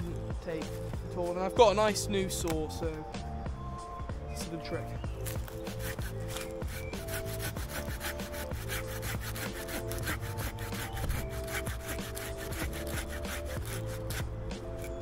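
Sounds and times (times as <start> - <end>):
hand saw cutting wood: 5.2 - 15.0.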